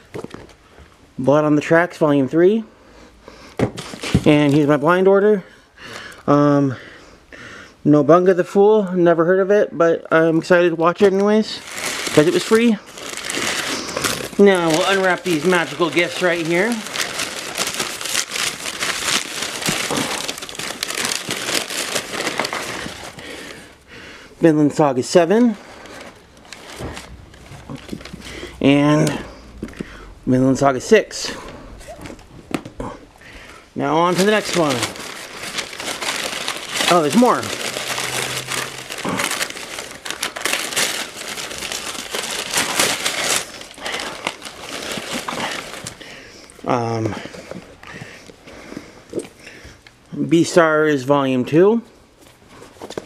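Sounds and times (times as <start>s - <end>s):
packing paper crumpling: 10.8s - 23.8s, 25.1s - 30.1s, 30.9s - 48.3s.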